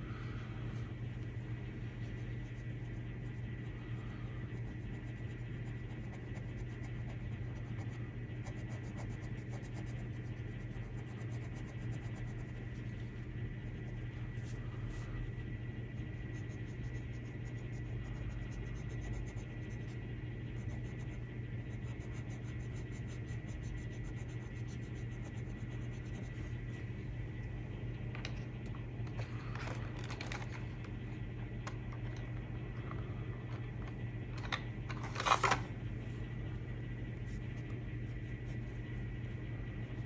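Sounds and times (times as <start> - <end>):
steady low hum: 0.0 - 40.0
pencil scratching on paper: 4.5 - 14.6, 16.0 - 26.6.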